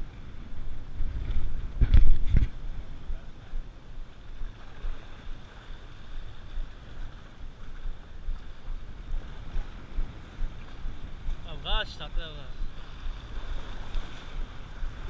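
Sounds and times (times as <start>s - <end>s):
wind gusting on microphone: 0.0s - 15.0s
sea washing against rocks: 4.1s - 15.0s.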